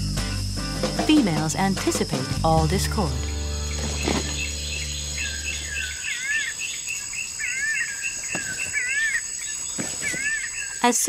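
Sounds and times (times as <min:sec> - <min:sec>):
high insect drone: 0:00.0 - 0:11.0
whistled bird calls: 0:03.2 - 0:10.9.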